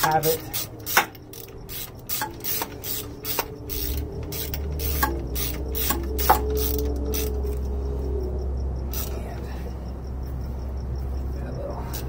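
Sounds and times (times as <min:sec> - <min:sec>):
socket ratchet clicking: 0:00.0 - 0:07.5
low steady hum: 0:00.0 - 0:12.0.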